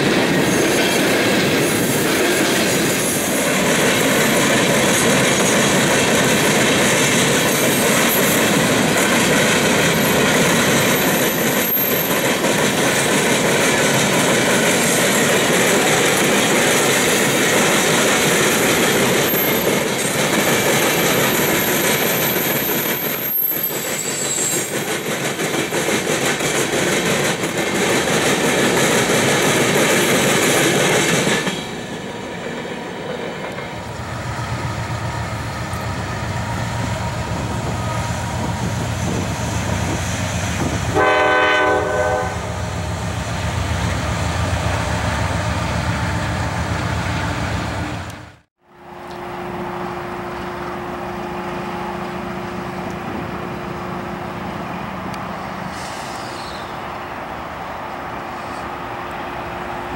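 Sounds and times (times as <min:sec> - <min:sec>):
train wheels clattering: 0:00.0 - 0:33.9
high wheel squeal: 0:09.8 - 0:12.4, 0:18.7 - 0:25.2, 0:55.6 - 0:56.9.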